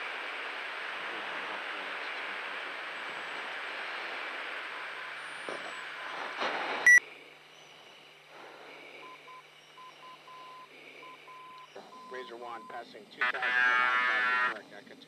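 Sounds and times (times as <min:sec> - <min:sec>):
faint beeping tone: 0:06.8 - 0:07.0, 0:09.0 - 0:12.8.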